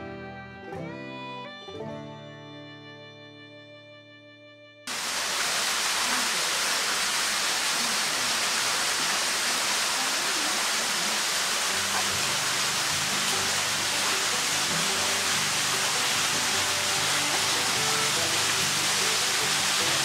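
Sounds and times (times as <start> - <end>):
music with guitar and strings: 0.0 - 4.9, 11.7 - 20.0
running water: 4.9 - 20.0.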